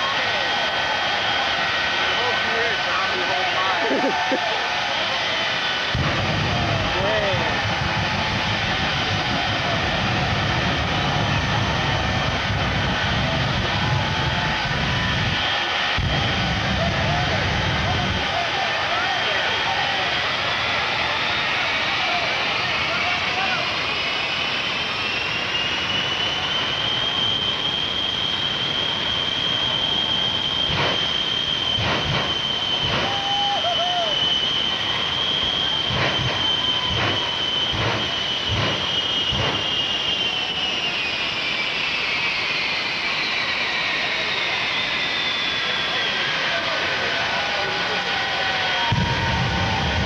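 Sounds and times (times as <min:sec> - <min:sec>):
jet engines roaring: 0:00.0 - 0:50.0
afterburner blasts: 0:05.6 - 0:18.5, 0:28.2 - 0:33.5, 0:34.1 - 0:40.9.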